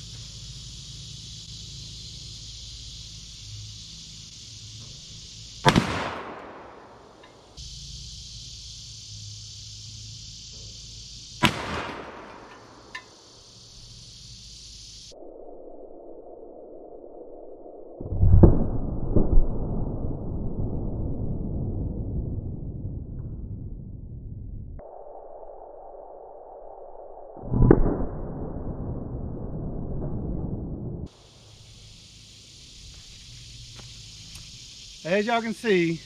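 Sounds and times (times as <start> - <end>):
loud revolver shots: 5.6 - 7.4, 11.4 - 13.0.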